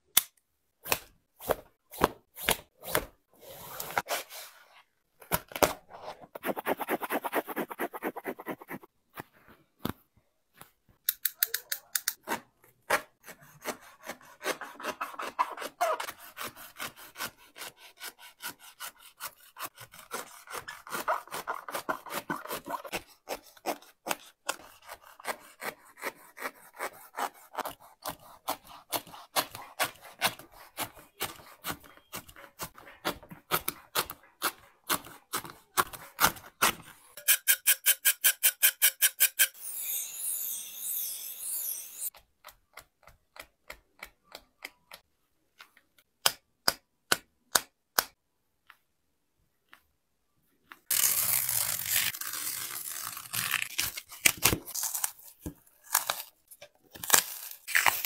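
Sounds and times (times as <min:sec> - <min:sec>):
blade sawing through sneaker: 0:13.2 - 0:33.8.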